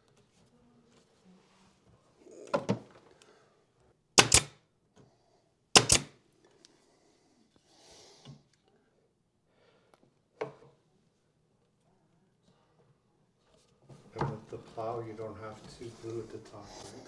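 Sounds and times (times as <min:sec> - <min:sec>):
pin nailer firing: 0:04.2 - 0:04.6, 0:05.8 - 0:06.2.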